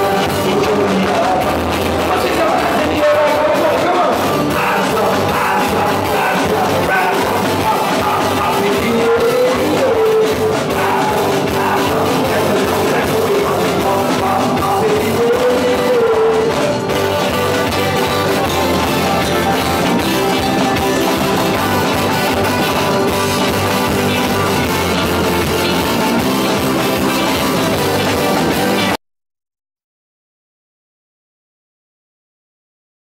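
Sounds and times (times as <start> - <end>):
live band with keyboard: 0.0 - 29.0.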